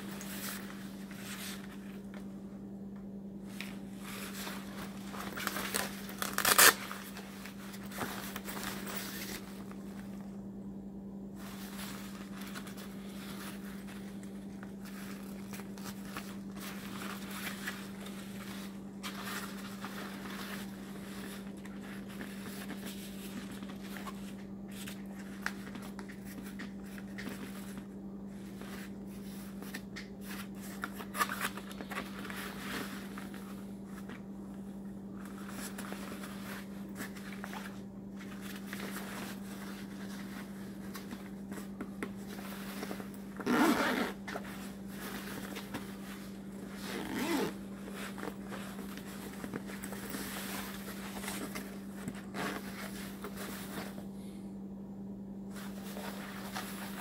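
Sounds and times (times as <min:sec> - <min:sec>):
fabric rustling: 0:00.0 - 0:02.4, 0:03.4 - 0:10.4, 0:11.3 - 0:54.1, 0:55.4 - 0:57.0
steady low hum: 0:00.0 - 0:57.0
zipper zipping: 0:43.4 - 0:44.4, 0:46.8 - 0:47.6.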